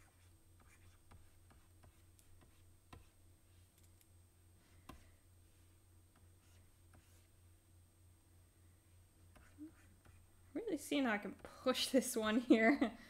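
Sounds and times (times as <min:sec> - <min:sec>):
faint steady hum: 0:00.0 - 0:13.0
stylus tapping on tablet: 0:00.6 - 0:03.1, 0:04.8 - 0:05.1.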